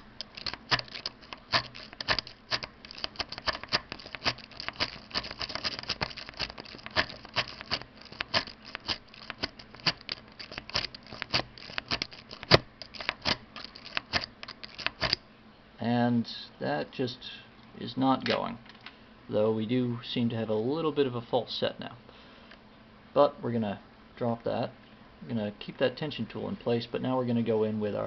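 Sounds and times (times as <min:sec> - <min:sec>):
lock pick clicking and rattling: 0:00.0 - 0:15.2.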